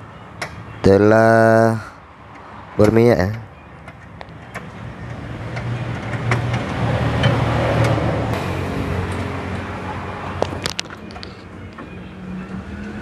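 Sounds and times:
vehicle engine humming: 0.0 - 13.0.

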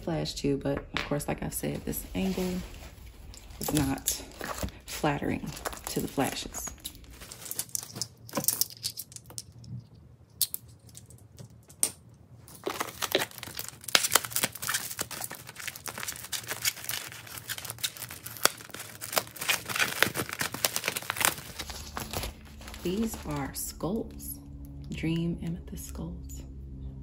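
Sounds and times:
plastic wrap crinkling: 1.5 - 9.4, 12.4 - 24.2
scissors cutting foam wrapping: 12.6 - 23.5.

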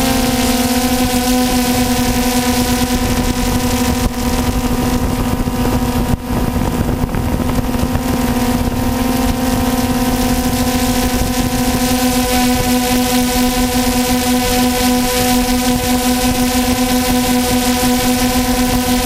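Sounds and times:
drone propellers buzzing: 0.0 - 19.0
wind on microphone: 0.0 - 19.0.

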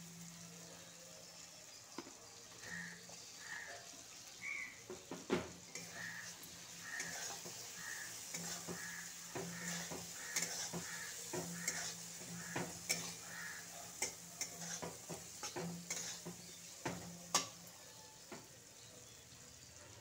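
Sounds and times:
food sizzling in spice paste: 0.0 - 20.0
metal spatula scraping metal pan: 5.6 - 17.7.

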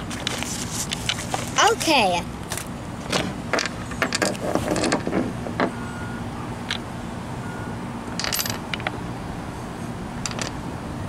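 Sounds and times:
metal skateboard parts clicking: 10.2 - 10.6.

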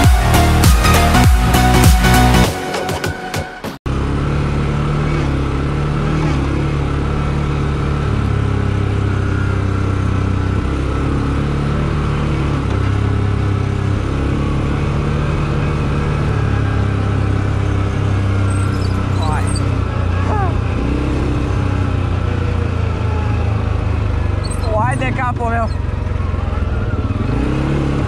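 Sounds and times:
atv engine running: 3.9 - 28.0.

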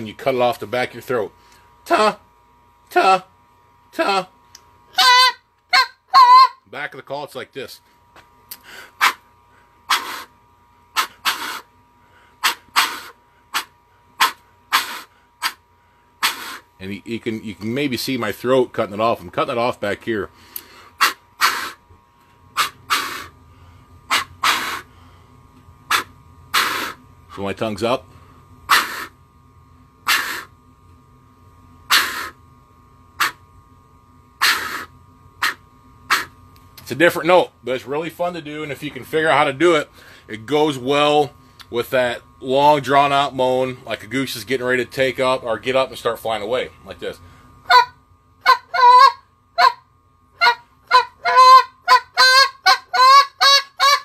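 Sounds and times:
goose call blown in bursts: 5.0 - 6.6, 9.0 - 9.2, 9.9 - 10.3, 11.0 - 11.7, 12.4 - 15.6, 16.2 - 16.6, 21.0 - 21.8, 22.6 - 23.3, 24.1 - 24.9, 25.9 - 27.0, 28.7 - 29.1, 30.0 - 30.5, 31.9 - 32.4, 33.2 - 33.4, 34.4 - 36.3, 47.6 - 49.8, 50.4 - 54.0.

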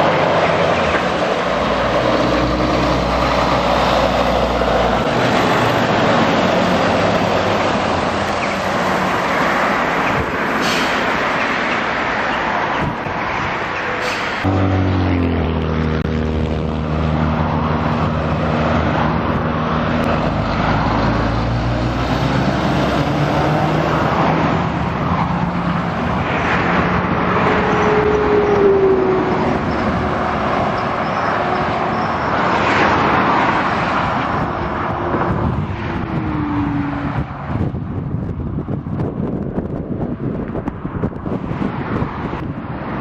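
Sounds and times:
tyre and road noise: 0.0 - 43.0
vehicles passing: 0.0 - 43.0
lorry passing: 14.2 - 32.0.

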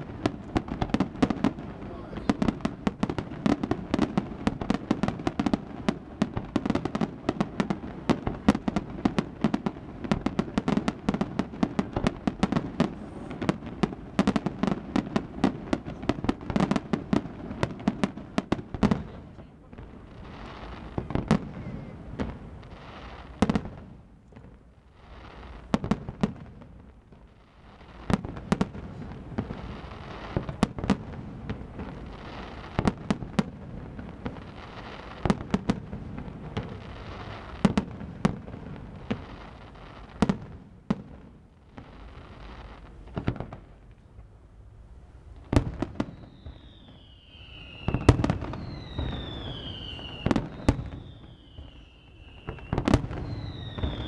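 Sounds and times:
firework bangs: 0.0 - 43.8, 45.4 - 54.0
falling firework whistles: 45.5 - 54.0.

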